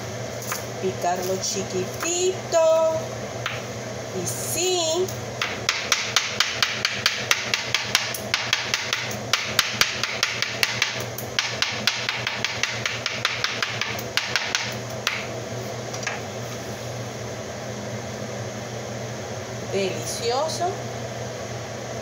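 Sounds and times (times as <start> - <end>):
knife chopping on a cutting board: 5.4 - 15.3.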